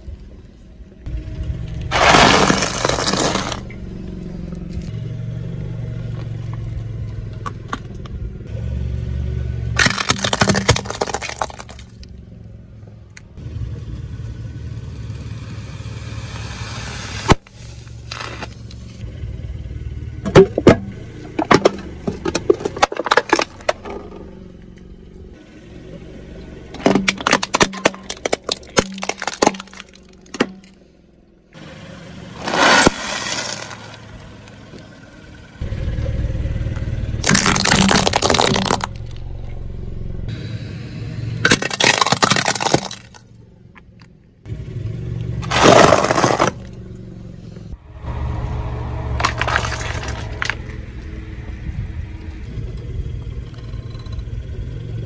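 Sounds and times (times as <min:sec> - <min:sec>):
car engine rumble: 0:00.0 - 0:55.0
tyre crushing objects: 0:01.9 - 0:03.7, 0:09.8 - 0:12.0, 0:26.8 - 0:30.7, 0:32.4 - 0:34.0, 0:37.2 - 0:39.1, 0:41.4 - 0:43.2, 0:45.4 - 0:46.7, 0:49.2 - 0:50.6.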